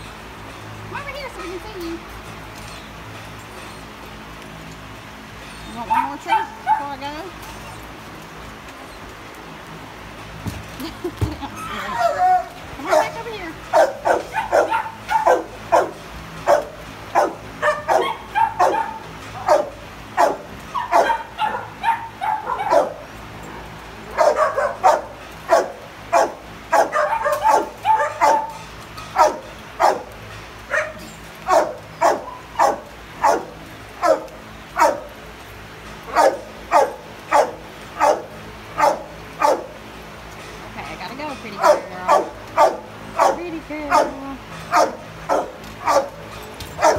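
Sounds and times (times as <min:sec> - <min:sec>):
dogs barking: 0:05.8 - 0:07.2, 0:11.6 - 0:35.2, 0:36.0 - 0:39.9, 0:41.4 - 0:46.9.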